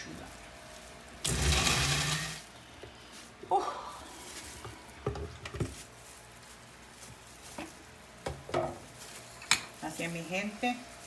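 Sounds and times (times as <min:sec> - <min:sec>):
blender motor cutting off: 0:01.2 - 0:02.5
blender jar clinking: 0:01.3 - 0:02.4.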